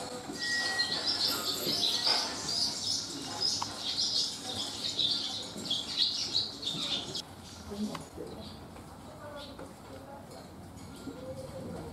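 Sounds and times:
swallows chirping: 0.8 - 7.6.

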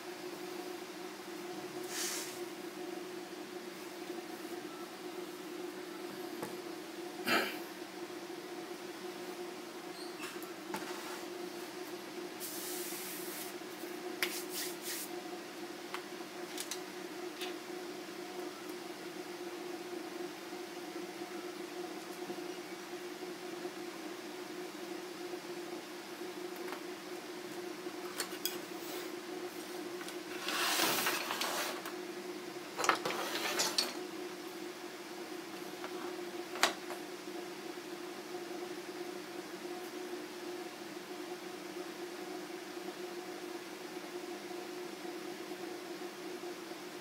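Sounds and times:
steady low hum: 0.0 - 47.0
brushing swish: 14.3 - 15.1.

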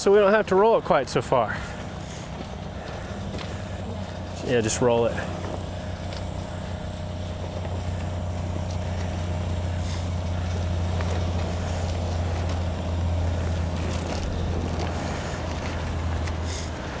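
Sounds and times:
diesel truck engine idling: 0.0 - 17.0
vinyl tarp rustling on gravel: 0.1 - 17.0.

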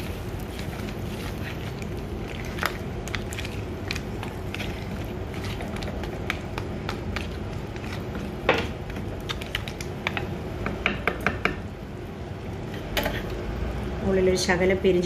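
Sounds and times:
spatula stirring thick sauce: 0.0 - 10.3
spatula and shells knocking pot: 10.0 - 11.6.

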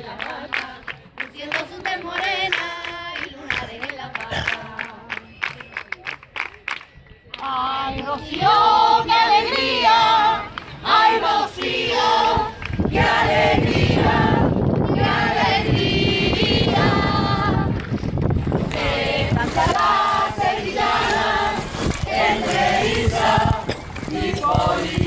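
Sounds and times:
group singing in chorus: 0.0 - 5.2, 7.4 - 17.8, 18.5 - 25.0
handclaps: 0.0 - 8.4
steady rushing noise: 12.2 - 25.0.

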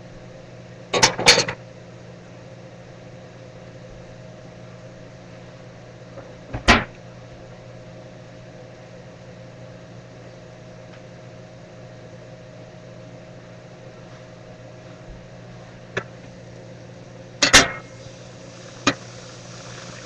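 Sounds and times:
kitchen appliance humming: 16.0 - 20.0.

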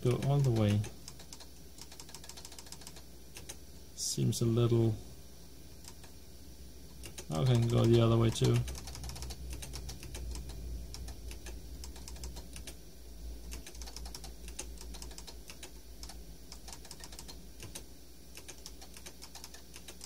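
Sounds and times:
steady low hum: 0.0 - 20.0
keyboard keys clicking: 0.1 - 3.6, 7.0 - 12.8, 13.5 - 17.8.

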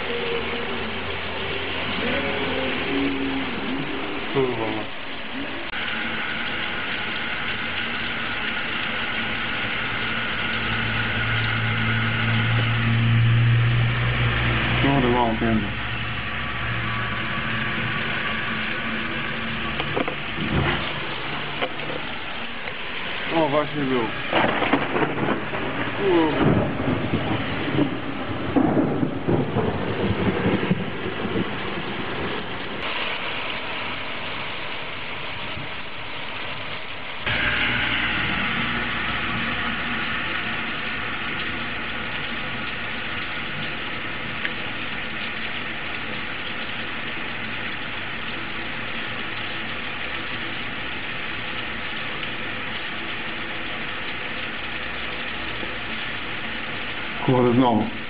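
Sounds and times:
heavy rain pouring: 0.0 - 58.0.

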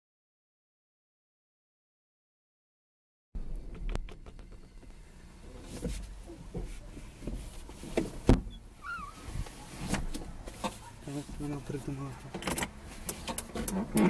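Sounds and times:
knocks and thumps in a car: 3.4 - 5.0, 5.7 - 8.6
wavering squeak: 8.5 - 9.4.

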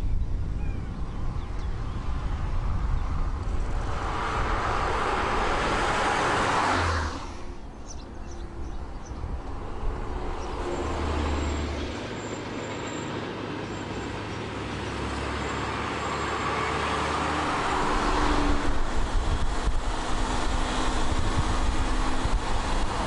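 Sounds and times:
tyre and road noise: 0.0 - 23.0.

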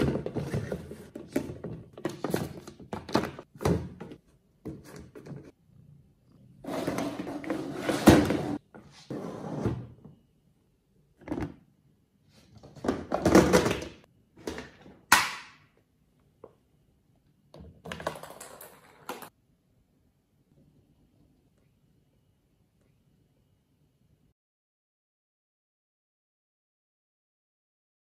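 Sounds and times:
plastic box clattering and scraping: 0.0 - 5.5, 6.6 - 9.9.

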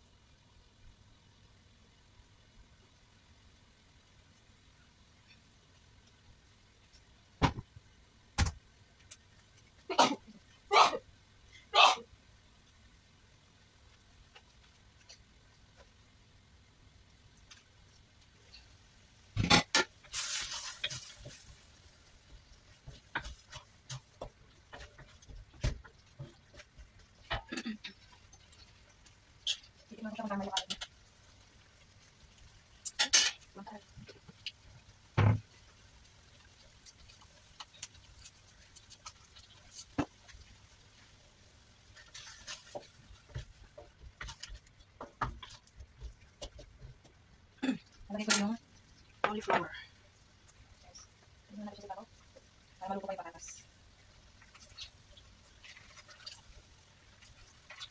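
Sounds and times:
curry sizzling: 0.0 - 57.9
wooden spatula stirring curry: 20.8 - 29.9, 41.8 - 47.3
spatula scraping and knocking pan: 22.3 - 28.5, 42.0 - 47.2.

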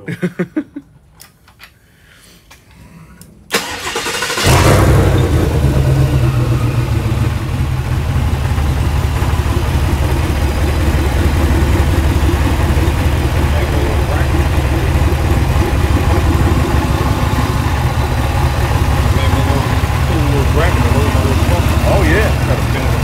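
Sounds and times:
starter cranking: 3.5 - 5.1
engine idling loudly: 3.7 - 23.0.

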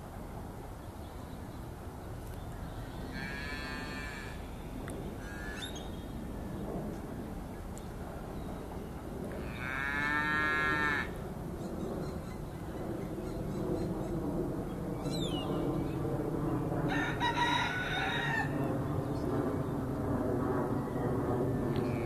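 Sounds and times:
steer mooing low: 3.1 - 5.6
rooster crowing: 16.9 - 18.7.

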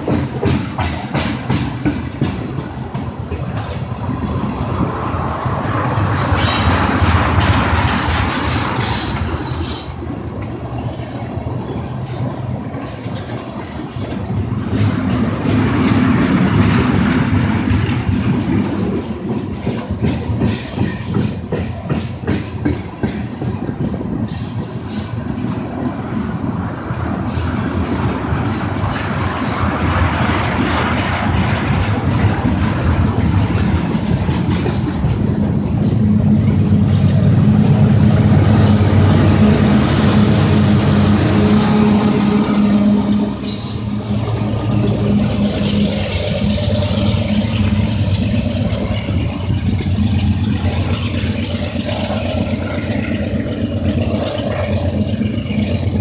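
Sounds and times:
freight train cars rolling past: 0.0 - 56.0
low locomotive engine rumble: 0.0 - 56.0
steel wheels clicking over rail joints: 0.0 - 56.0
high-pitched flange squeal: 4.1 - 11.4, 34.8 - 48.3.

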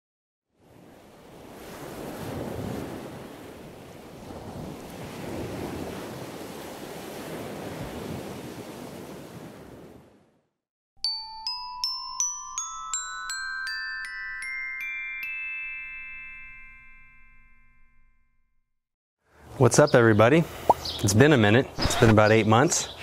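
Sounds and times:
bell-like struck notes melody: 11.0 - 18.6.

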